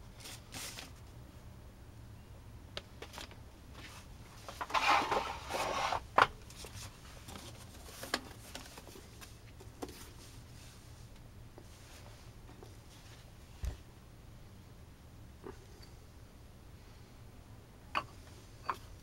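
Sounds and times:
paper and cardboard rustling: 0.2 - 1.1, 3.0 - 10.8.

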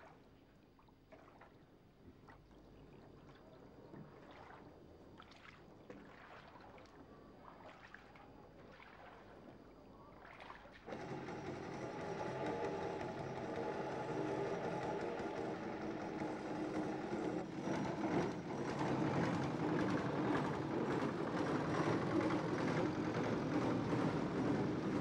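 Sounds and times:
boat engine running: 10.9 - 25.0.

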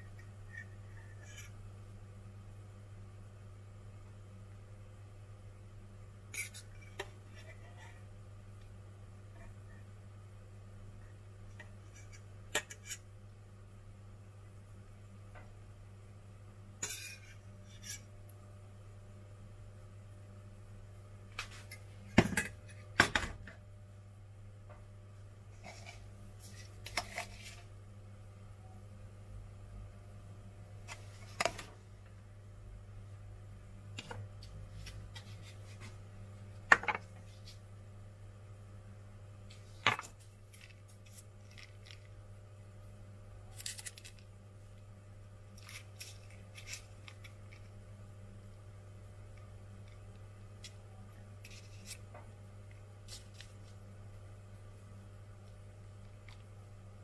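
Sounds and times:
faint hum: 0.0 - 57.0
paper and pastry crinkling: 25.6 - 27.7, 39.6 - 42.2, 43.5 - 44.4, 45.5 - 47.8, 51.4 - 52.1, 53.0 - 53.8.

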